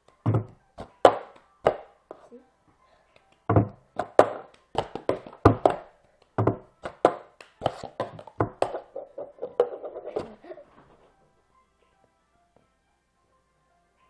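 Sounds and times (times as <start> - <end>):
hand claps: 3.1 - 5.3, 6.2 - 8.8.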